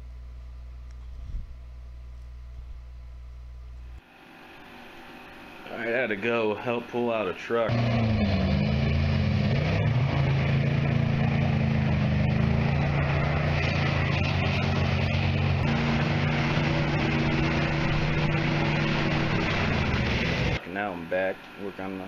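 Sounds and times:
truck engines revving under load: 7.5 - 20.6
wheels spinning in mud: 7.8 - 20.6.

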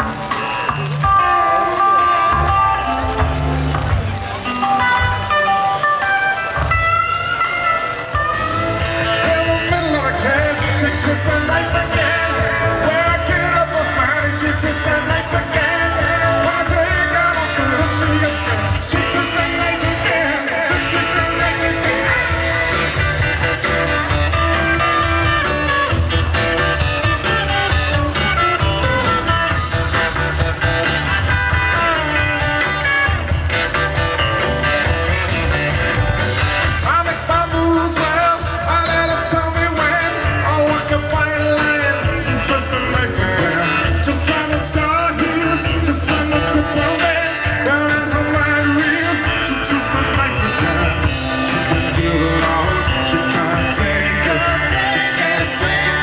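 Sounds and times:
bass guitar: 0.0 - 56.0
drums: 0.0 - 56.0
electric guitar: 0.0 - 56.0
man singing: 8.0 - 26.0, 34.8 - 56.0.

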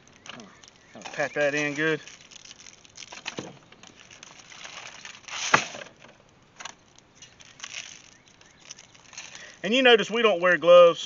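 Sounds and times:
aluminum foil crinkling: 0.0 - 10.0.

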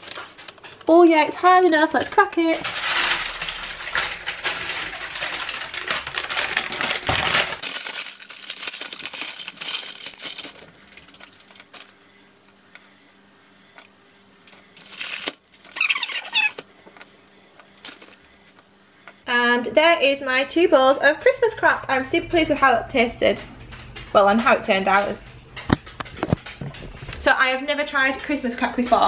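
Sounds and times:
baking paper crinkling: 0.0 - 12.4, 14.5 - 16.6, 17.8 - 18.8.

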